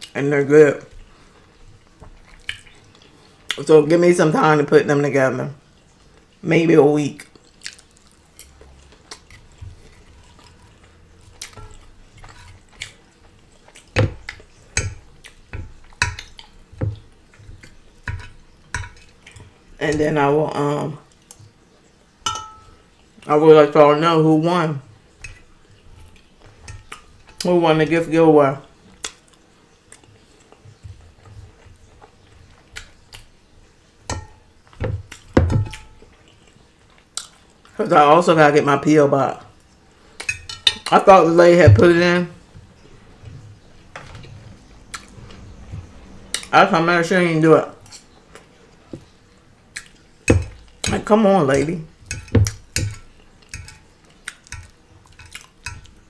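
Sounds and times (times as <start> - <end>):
chewing and wet mouth sounds: 0.9 - 3.7, 7.2 - 19.8, 28.6 - 37.8, 42.4 - 46.6, 47.8 - 51.0, 51.9 - 56.0
fork clinking on ceramic dish: 22.3 - 22.8.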